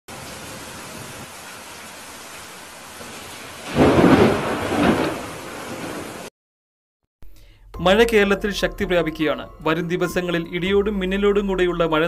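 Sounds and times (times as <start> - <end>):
steady rain hiss: 0.1 - 6.3
thunder clap rumbling: 3.6 - 6.3.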